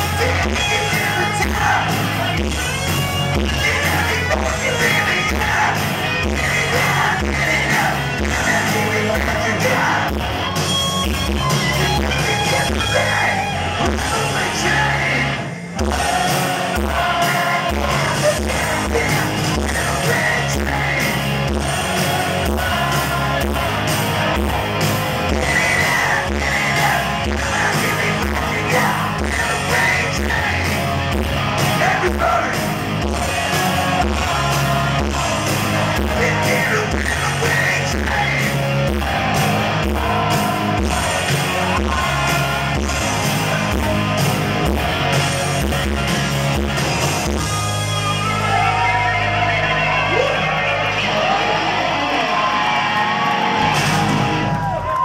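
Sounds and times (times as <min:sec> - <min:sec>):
man singing and shouting: 0:00.0 - 0:10.3, 0:11.6 - 0:24.0, 0:25.2 - 0:38.9, 0:47.4 - 0:52.6
steady drum beat: 0:00.0 - 0:15.0, 0:15.7 - 0:48.4
bass guitar: 0:00.0 - 0:55.0
distorted electric guitars: 0:00.0 - 0:55.0.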